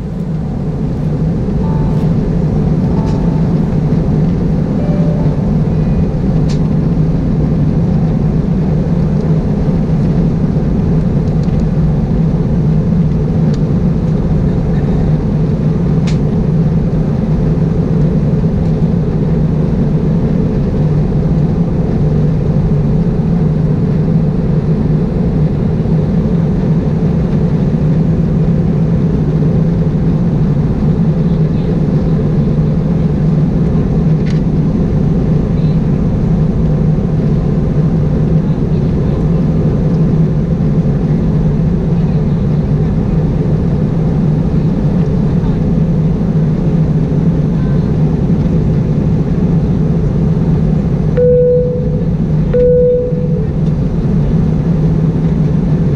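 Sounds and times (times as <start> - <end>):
airplane cabin engine hum: 0.0 - 55.9.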